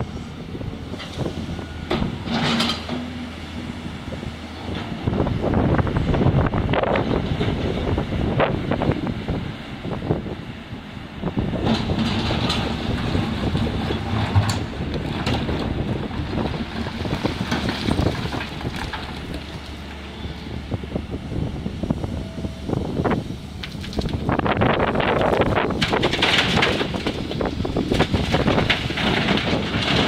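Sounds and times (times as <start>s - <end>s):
excavator diesel engine under load: 0.0s - 30.0s
rocks knocking and clattering: 11.6s - 19.8s, 23.6s - 24.4s, 25.1s - 30.0s.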